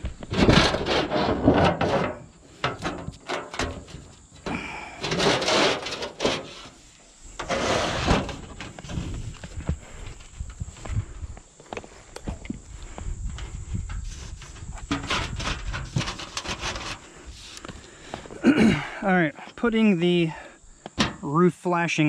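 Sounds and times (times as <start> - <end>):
sheet metal scraping on shingles: 0.2 - 10.3, 13.4 - 17.6.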